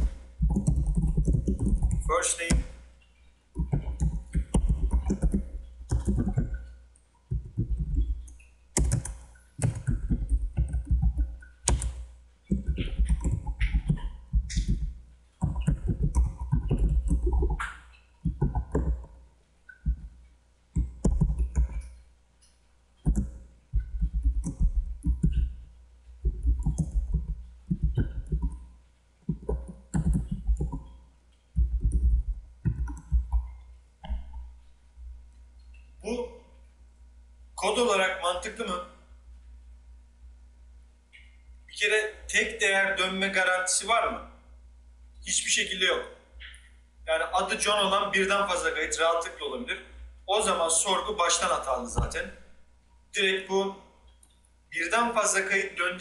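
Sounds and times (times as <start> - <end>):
computer keyboard typing: 0.0 - 2.6, 3.6 - 6.7, 7.3 - 19.1, 19.7 - 20.1, 20.8 - 21.9, 23.0 - 25.6, 26.2 - 28.6, 29.3 - 31.0, 31.6 - 34.3.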